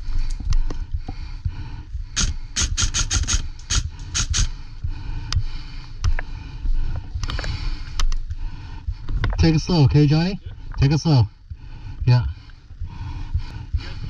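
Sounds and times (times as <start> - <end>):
steady low rumble: 0.0 - 14.0
sharp snaps: 2.1 - 4.6.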